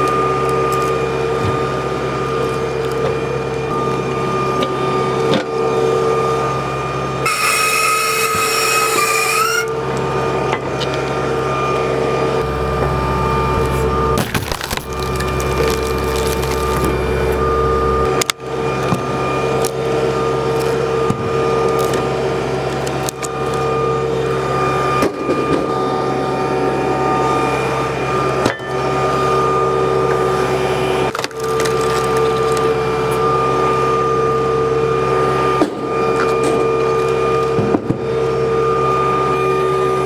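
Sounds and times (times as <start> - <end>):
hydraulic whine: 0.0 - 40.0
tractor engine running: 9.7 - 34.6
wood cracking and splintering: 14.2 - 17.2, 31.1 - 32.8.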